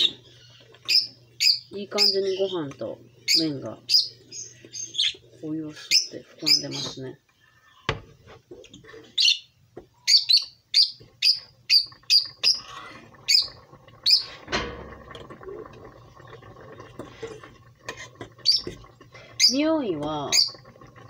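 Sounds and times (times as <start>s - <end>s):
small bird chirping: 0.0s - 5.2s, 9.2s - 12.6s.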